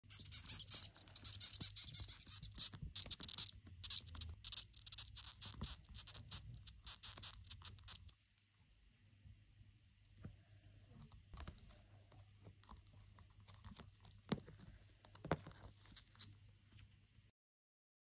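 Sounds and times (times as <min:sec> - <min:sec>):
moth squeaking and clicking: 0:00.0 - 0:08.2.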